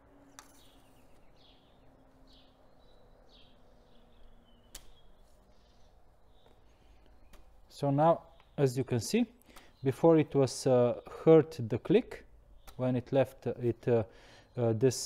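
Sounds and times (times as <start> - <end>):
faint high bird chirps: 0.0 - 10.1.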